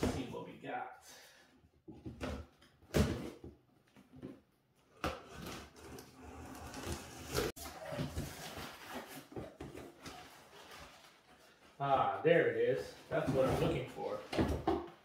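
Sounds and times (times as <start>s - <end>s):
cardboard flaps scraping: 5.6s - 11.1s.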